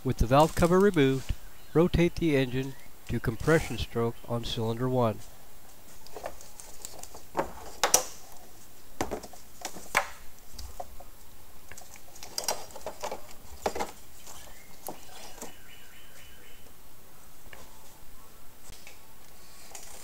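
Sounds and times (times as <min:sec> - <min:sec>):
clicks and knocks of car parts: 0:07.3 - 0:08.2.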